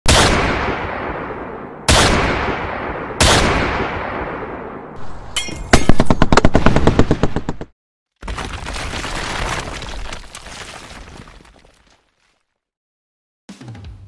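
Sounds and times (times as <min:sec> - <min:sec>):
single gunshot: 0:00.1 - 0:04.7.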